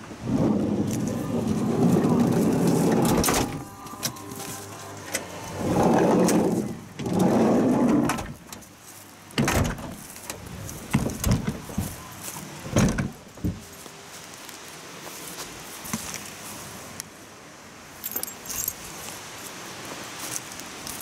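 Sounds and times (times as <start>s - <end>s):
sliding van door rolling: 0.0s - 8.7s, 9.4s - 12.0s, 12.6s - 13.6s
sharp clunks and knocks: 9.4s - 12.0s.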